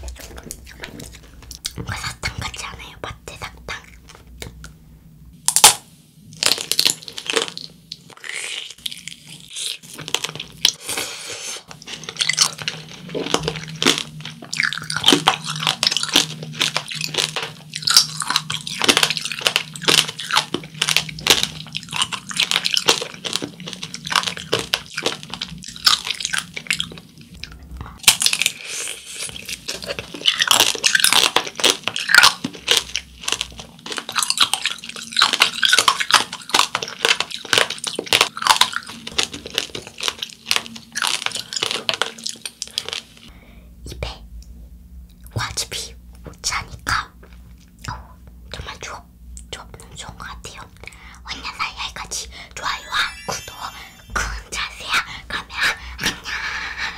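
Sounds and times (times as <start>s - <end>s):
candy shell crunching while chewed: 5.5s - 43.3s.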